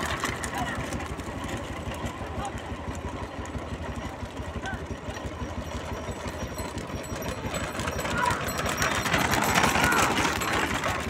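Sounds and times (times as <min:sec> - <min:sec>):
motorcycle and scooter engines: 0:00.0 - 0:11.0
people shouting: 0:08.0 - 0:10.5.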